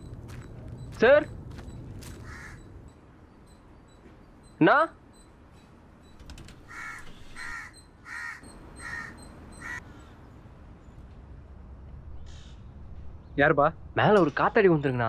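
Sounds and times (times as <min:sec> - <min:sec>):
crow cawing: 0:02.0 - 0:02.7, 0:06.6 - 0:10.2.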